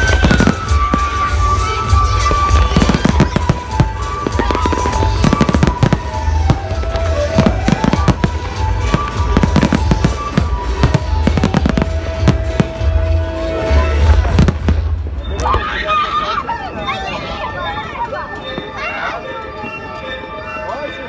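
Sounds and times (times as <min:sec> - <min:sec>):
fireworks bangs and crackles: 0:00.0 - 0:15.9
music playing: 0:00.0 - 0:21.0.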